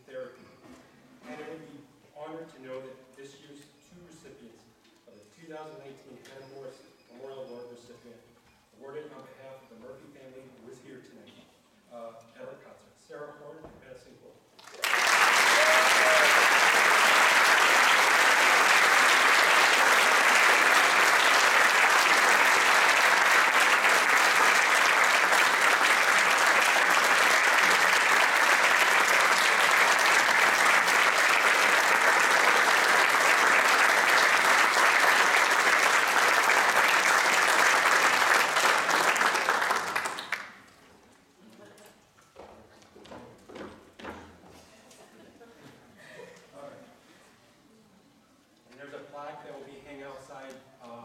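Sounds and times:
audience applause: 14.6s - 40.6s.

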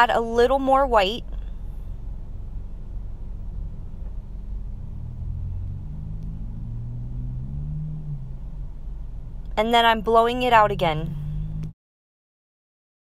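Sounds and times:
faint rising hum: 0.0s - 11.7s
low steady rumble: 0.0s - 11.8s.

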